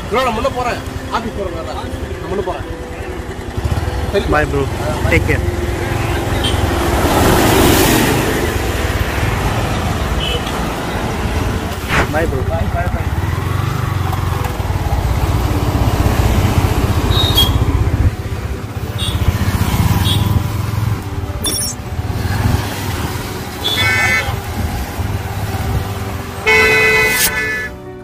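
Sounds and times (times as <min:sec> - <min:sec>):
vehicle engine running: 0:00.0 - 0:07.6
road traffic: 0:00.0 - 0:28.0
vehicle horn honking: 0:17.1 - 0:17.7, 0:19.0 - 0:19.3, 0:20.0 - 0:20.4, 0:23.6 - 0:24.4, 0:26.4 - 0:27.8.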